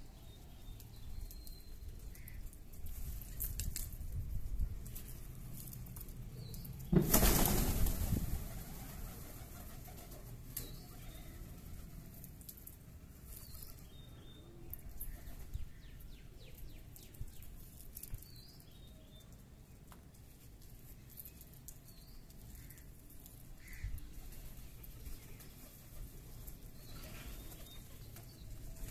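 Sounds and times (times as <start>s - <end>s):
pigeon wings flapping: 7.0s - 10.3s.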